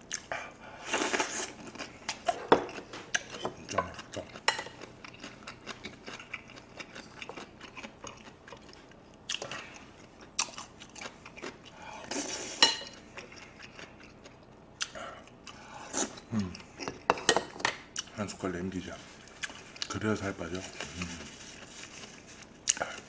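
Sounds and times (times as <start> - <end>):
close chewing and mouth sounds: 0.0 - 17.1, 17.7 - 23.0.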